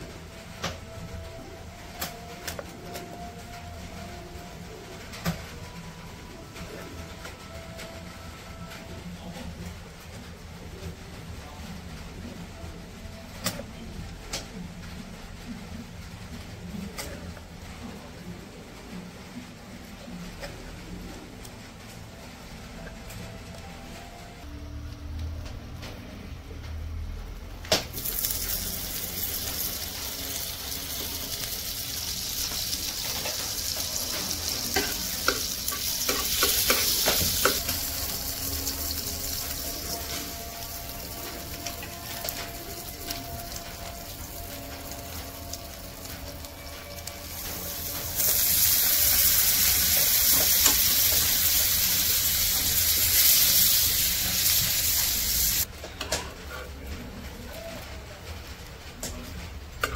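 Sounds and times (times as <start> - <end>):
butter sizzling in pan: 27.9 - 55.7.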